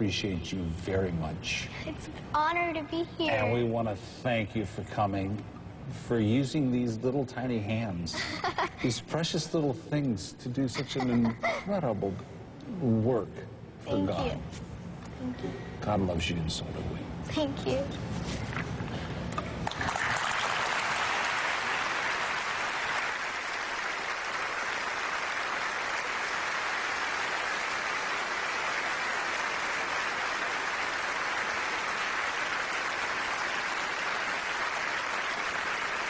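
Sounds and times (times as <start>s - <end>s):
large audience applauding: 19.6s - 36.0s.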